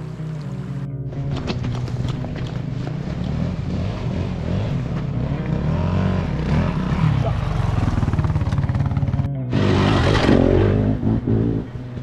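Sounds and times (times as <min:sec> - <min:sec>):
dirt bike engine revving: 0:02.9 - 0:11.8.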